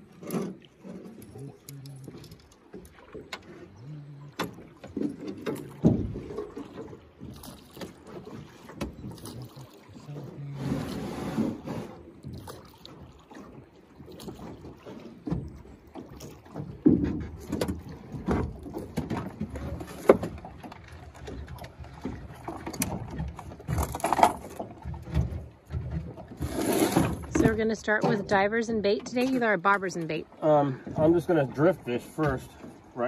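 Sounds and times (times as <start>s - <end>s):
knocks and clunks on boat hull: 0.0s - 10.6s, 11.3s - 33.0s
water rumble: 0.0s - 33.0s
wind: 0.0s - 33.0s.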